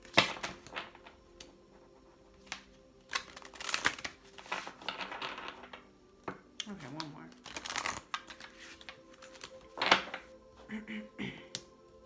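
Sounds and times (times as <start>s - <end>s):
cards shuffling: 2.4s - 5.8s, 6.8s - 10.4s.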